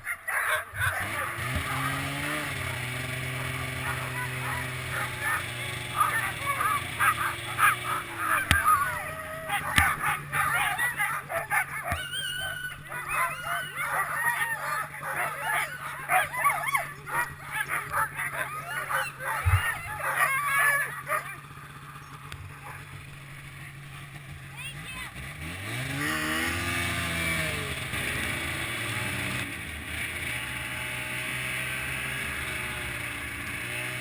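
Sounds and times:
sled dogs yelping and barking: 0.0 - 23.7
snowmobile engine idling: 0.0 - 34.0.

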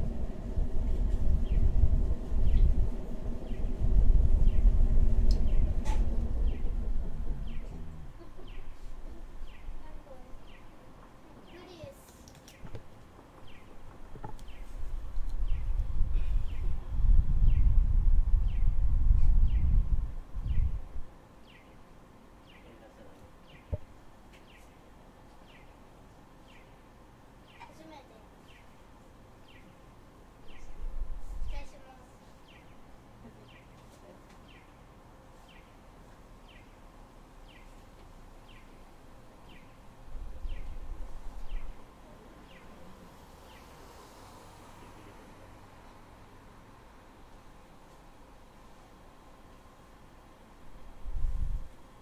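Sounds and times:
tram rumbling: 0.0 - 10.6
faint steady hum: 0.0 - 52.0.

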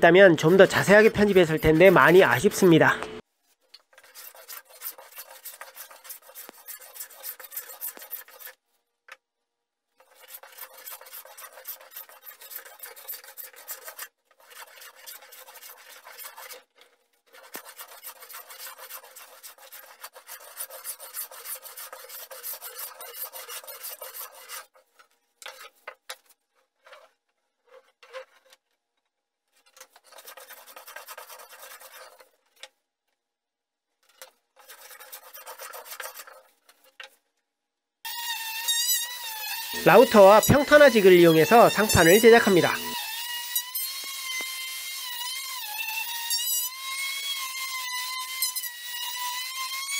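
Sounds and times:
hand plane shaving wood: 0.2 - 2.8, 3.9 - 8.6, 10.0 - 28.6, 29.7 - 32.4, 34.2 - 36.9, 39.0 - 43.0.

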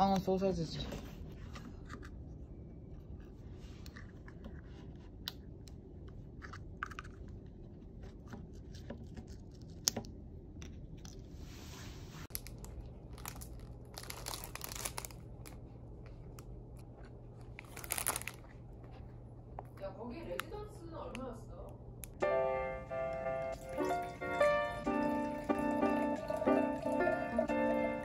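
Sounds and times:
plastic wrap crinkling: 12.3 - 16.4, 17.3 - 18.9.

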